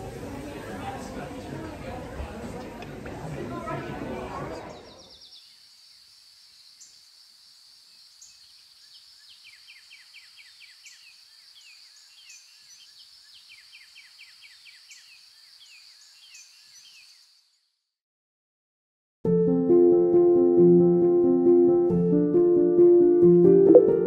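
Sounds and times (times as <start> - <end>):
small birds chirping: 4.6 - 17.9.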